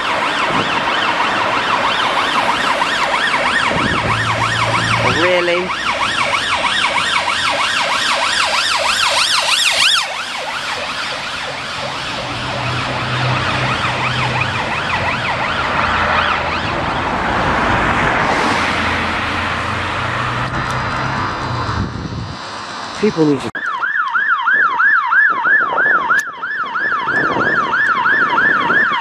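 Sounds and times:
police siren yelping: 0.0s - 18.5s, 23.6s - 29.0s
traffic noise: 0.0s - 29.0s.

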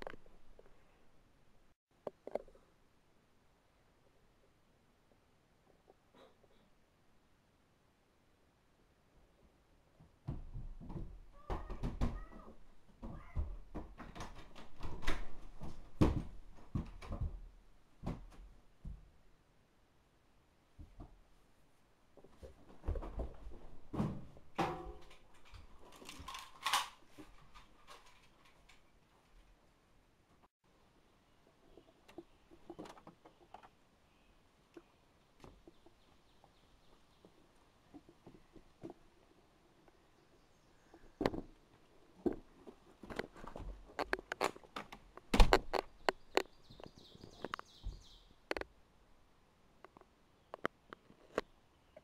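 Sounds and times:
knocks and thumps in wooden room: 9.9s - 19.2s, 20.7s - 21.4s, 22.1s - 28.2s, 42.2s - 46.9s.

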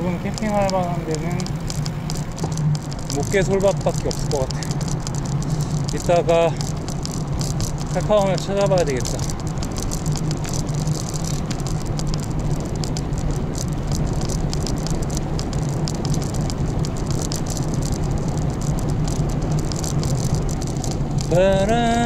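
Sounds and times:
bicycle tyres rumbling on road: 0.0s - 22.0s
fine rattle from bike: 0.0s - 22.0s
wind: 0.0s - 22.0s.

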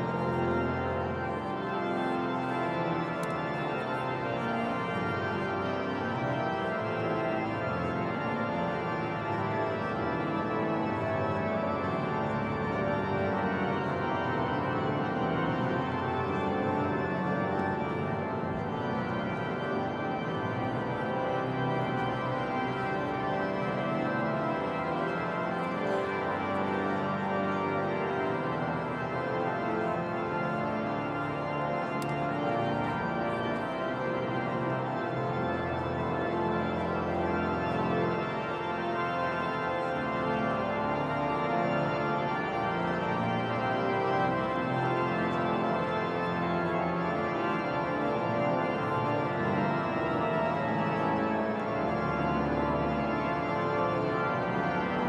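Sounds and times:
pipe organ chords: 0.0s - 55.0s.

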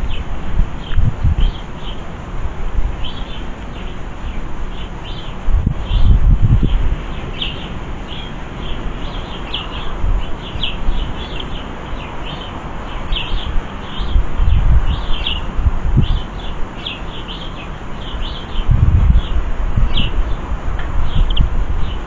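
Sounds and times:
small birds chirping: 0.0s - 2.2s, 2.9s - 22.0s.

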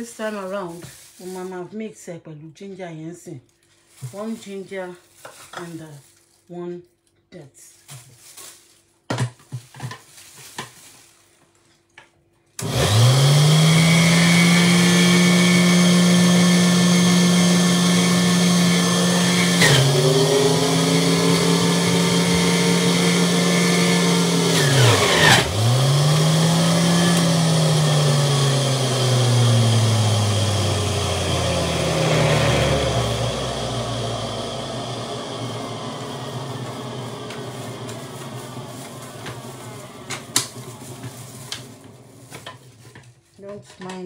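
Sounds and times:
juicer motor whining: 12.6s - 42.5s.

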